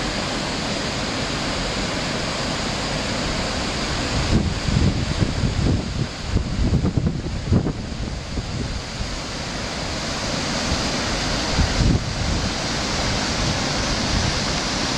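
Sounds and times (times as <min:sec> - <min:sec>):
river rushing over rocks: 0:00.0 - 0:14.9
wind buffeting microphone: 0:04.0 - 0:09.3, 0:10.5 - 0:14.9.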